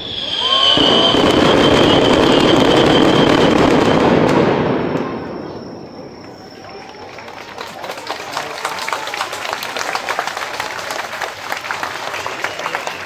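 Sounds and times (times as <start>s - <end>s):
fireworks high whistle: 0.0s - 7.8s
fireworks crackling: 0.0s - 8.3s.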